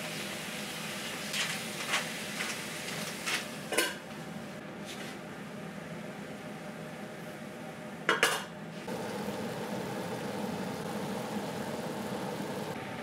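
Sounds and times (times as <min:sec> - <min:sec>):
pan bubbling and sizzling: 0:00.0 - 0:03.6, 0:08.8 - 0:13.0.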